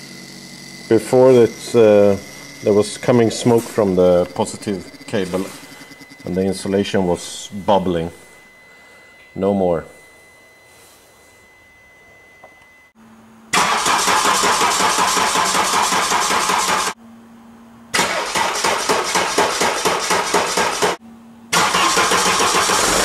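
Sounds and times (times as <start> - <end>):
faint steady hum: 0.0 - 13.6
starter motor cranking diesel engine: 0.8 - 6.5, 13.5 - 17.0, 18.0 - 21.0, 21.6 - 23.0.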